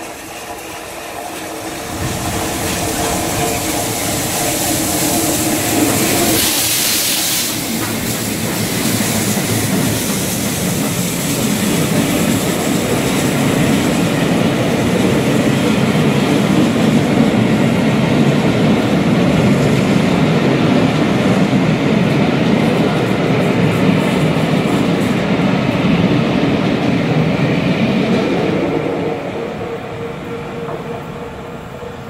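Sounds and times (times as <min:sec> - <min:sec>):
locomotive steam hiss: 0:00.0 - 0:17.1
wheels clickety-clack: 0:00.0 - 0:26.0
train wheels rumbling on rails: 0:00.0 - 0:32.0.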